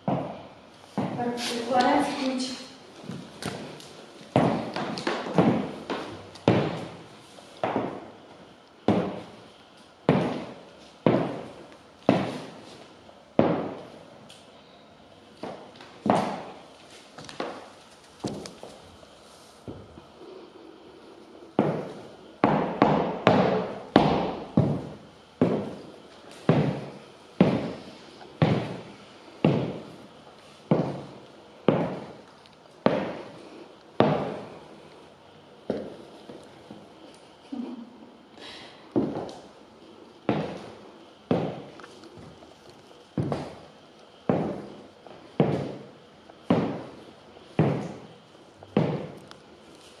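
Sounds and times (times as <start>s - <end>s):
heels clicking on hard floor: 0.0s - 7.0s, 10.1s - 12.8s, 15.4s - 18.8s, 21.6s - 27.8s, 28.4s - 30.0s, 30.6s - 33.4s, 34.0s - 34.6s, 39.0s - 39.5s, 40.3s - 43.7s, 44.3s - 50.0s.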